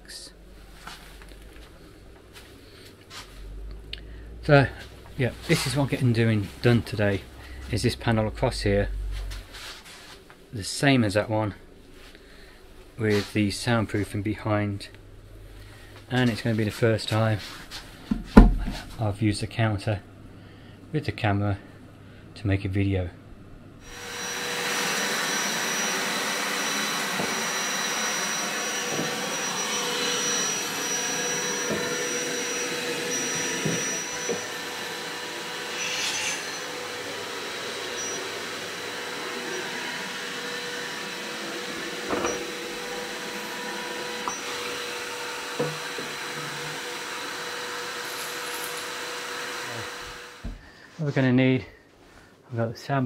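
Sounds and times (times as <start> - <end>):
fan whooshing and whining: 0.0 - 18.9, 23.8 - 48.0.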